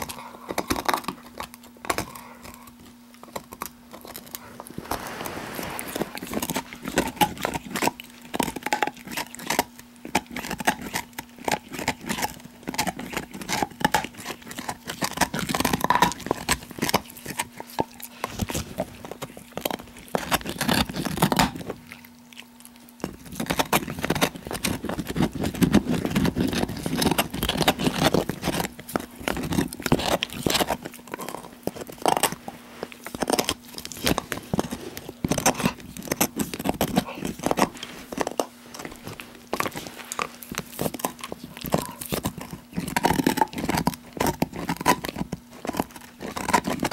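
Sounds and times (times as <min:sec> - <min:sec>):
dog gnawing on a bone: 0:00.0 - 0:46.9.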